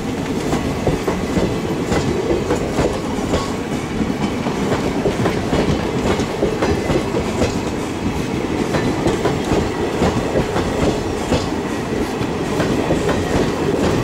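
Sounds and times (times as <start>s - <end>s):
train wheels rumbling on rails: 0.0s - 14.0s.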